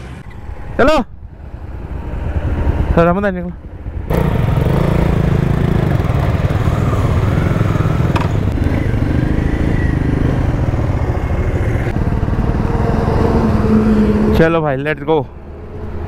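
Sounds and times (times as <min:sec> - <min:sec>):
motorcycle engines idling: 0:01.8 - 0:14.0.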